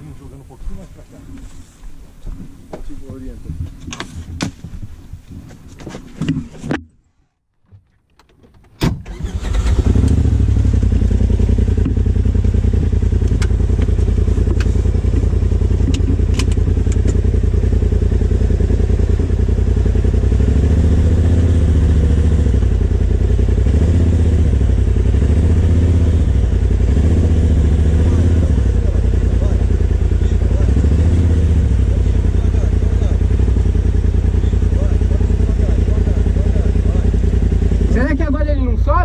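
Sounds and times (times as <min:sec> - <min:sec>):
engine running steadily: 0:09.0 - 0:39.0.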